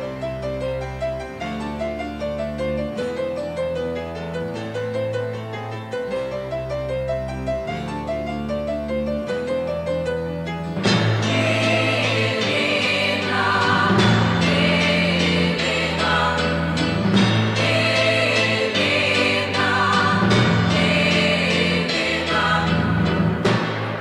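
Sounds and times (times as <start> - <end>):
pop music held chords: 10.6 - 24.0.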